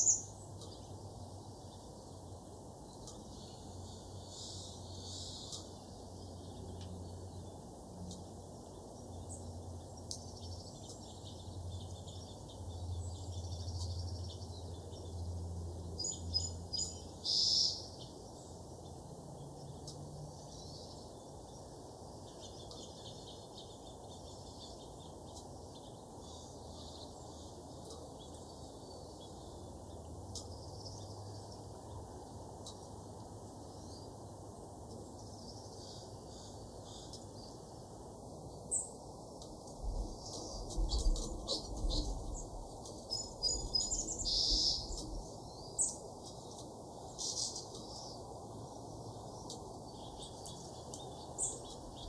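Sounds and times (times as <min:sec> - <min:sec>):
low background hum: 0:00.0 - 0:52.0
songbirds chirping: 0:00.0 - 0:52.0.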